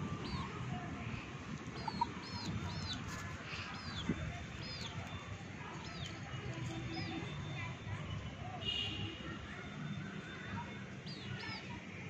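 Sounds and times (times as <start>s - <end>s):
small birds peeping: 1.4s - 7.5s.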